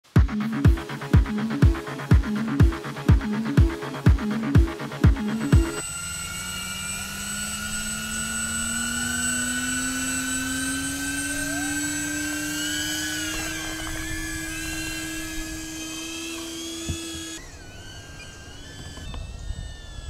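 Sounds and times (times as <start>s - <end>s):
drone propellers whining: 0.0s - 20.0s.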